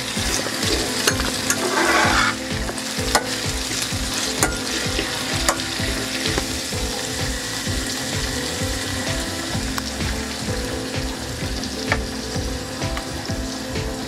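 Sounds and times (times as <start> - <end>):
vegetables sizzling in oil: 0.0 - 14.0
spatula scraping pan: 0.2 - 3.4.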